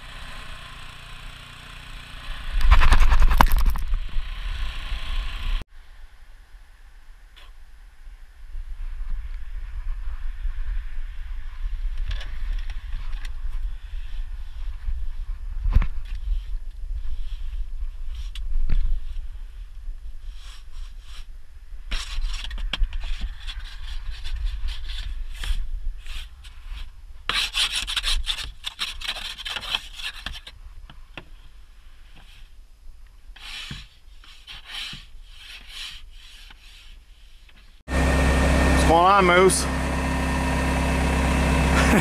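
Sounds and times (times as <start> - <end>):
snow brush sweeping car windows: 33.4 - 37.5.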